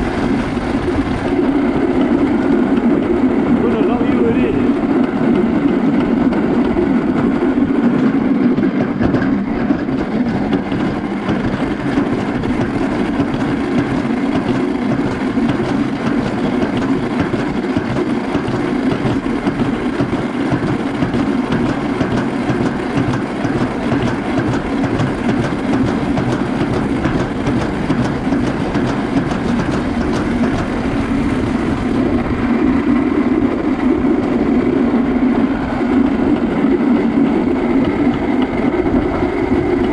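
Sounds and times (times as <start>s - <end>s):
sled rumbling down steel track: 0.0s - 39.9s
rapid clattering clicks: 4.7s - 31.0s.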